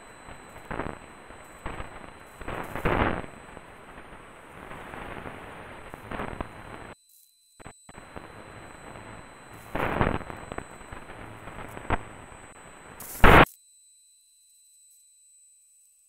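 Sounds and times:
radio static hiss: 0:00.0 - 0:07.0, 0:07.9 - 0:13.6.

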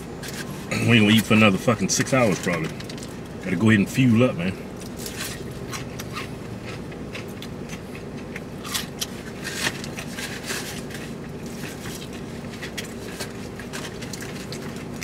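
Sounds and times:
low hum in car cabin: 0:00.0 - 0:15.0
food packaging crackling: 0:04.8 - 0:15.0.

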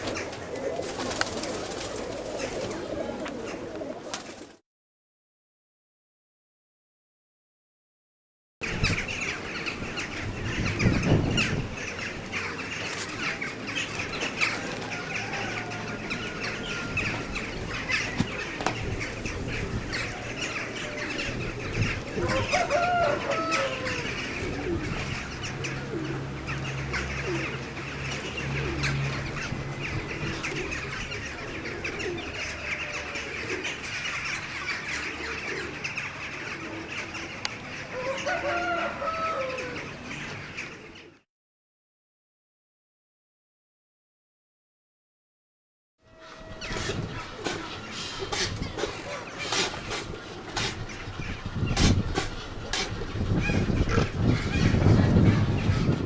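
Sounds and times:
poultry calling: 0:08.6 - 0:41.2, 0:46.1 - 0:56.0.

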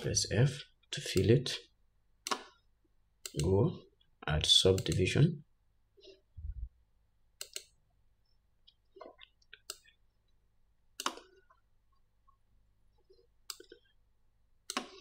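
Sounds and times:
computer mouse clicking: 0:03.2 - 0:03.5, 0:04.7 - 0:05.1, 0:07.4 - 0:07.8, 0:08.7 - 0:09.9, 0:11.0 - 0:11.4, 0:13.4 - 0:13.9, 0:14.6 - 0:15.0
mouse scroll wheel turning: 0:12.9 - 0:14.0.

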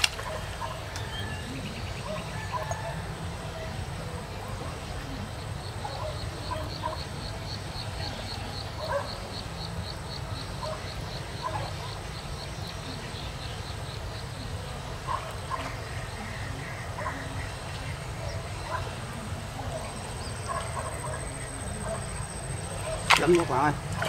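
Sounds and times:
insect chirping: 0:19.6 - 0:24.0.

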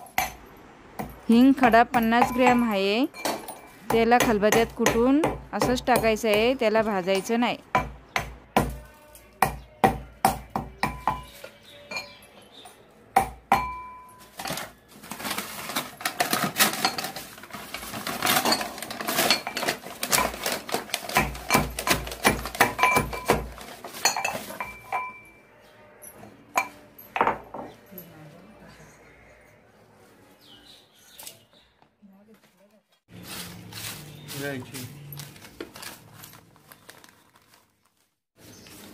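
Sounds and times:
metal pestle pounding in mortar: 0:07.7 - 0:08.8, 0:20.1 - 0:23.6
paper packet rustling: 0:14.2 - 0:21.3, 0:32.5 - 0:38.9.

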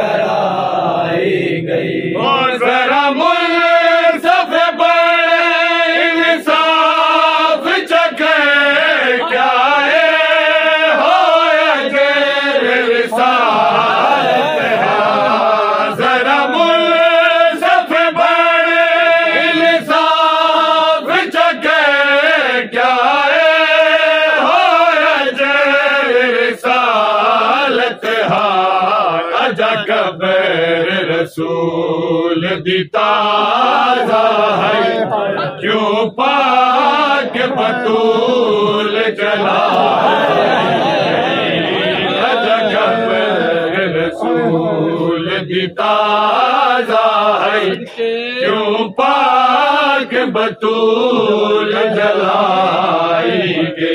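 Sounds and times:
men chanting a lament: 0:00.0 - 0:53.9.

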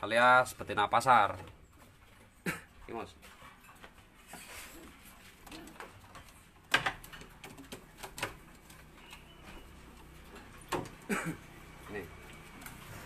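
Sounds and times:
cage front clicking and rattling: 0:05.4 - 0:09.2.

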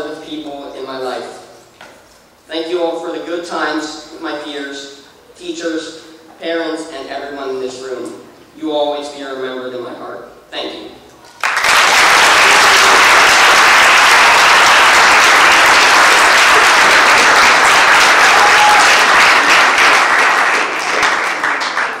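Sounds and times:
audience applauding: 0:11.4 - 0:22.0.

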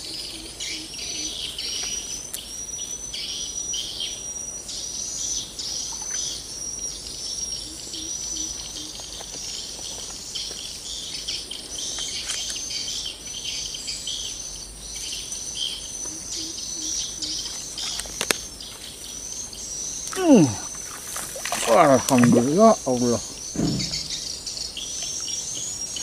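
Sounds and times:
bird chirps: 0:00.0 - 0:26.0
high-pitched insect chorus: 0:00.0 - 0:26.0
low calls: 0:15.2 - 0:26.0.

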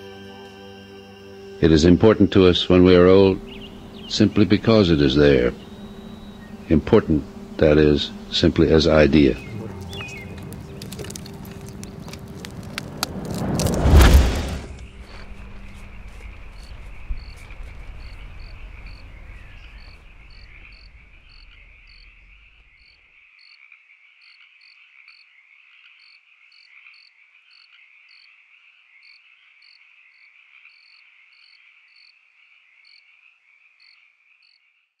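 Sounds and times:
frogs and insects trilling: 0:00.0 - 0:13.4, 0:15.0 - 0:35.0
low rumble: 0:03.2 - 0:22.8.

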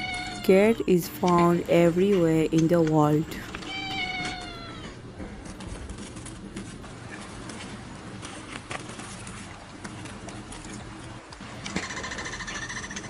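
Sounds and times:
cat meowing: 0:00.0 - 0:00.5, 0:03.7 - 0:05.0.

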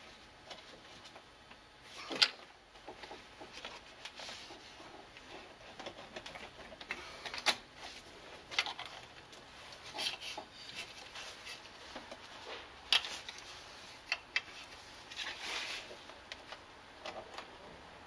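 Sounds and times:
hands rustling among hoses: 0:02.8 - 0:16.3.

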